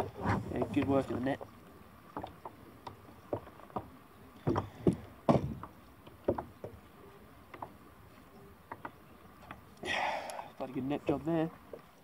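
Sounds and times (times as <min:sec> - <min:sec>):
knocks on plastic kayak: 0:04.5 - 0:05.7.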